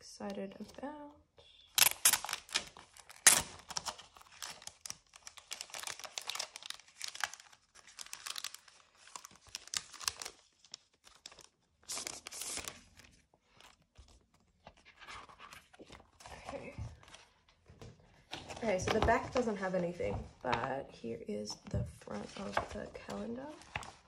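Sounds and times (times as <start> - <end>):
plastic sleeve crinkling: 1.8 - 17.3, 22.2 - 24.0.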